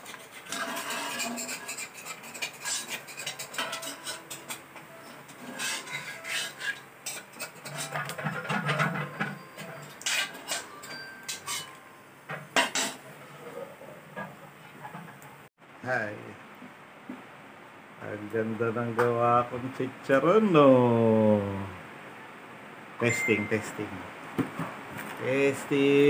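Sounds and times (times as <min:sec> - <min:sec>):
metal spatula scraping a wok: 0:00.0 - 0:11.8, 0:12.4 - 0:15.4.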